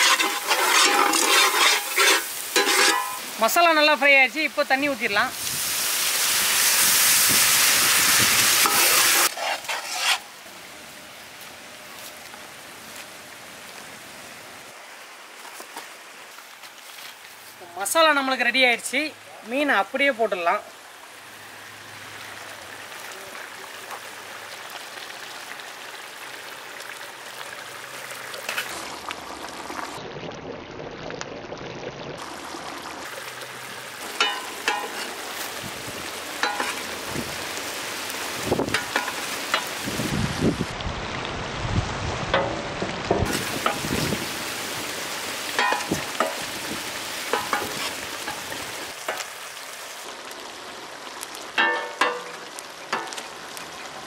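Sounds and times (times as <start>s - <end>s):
steel ladle clinking against pan: 0.0s - 3.2s, 34.2s - 35.1s, 36.4s - 36.8s, 45.6s - 46.4s, 51.6s - 52.4s
gravy bubbling and sizzling in a pan: 0.0s - 14.2s, 20.0s - 41.4s, 42.1s - 54.0s.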